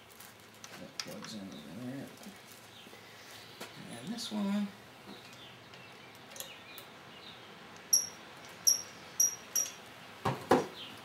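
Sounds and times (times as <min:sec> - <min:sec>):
high-pitched metallic clinks: 0:07.9 - 0:09.8.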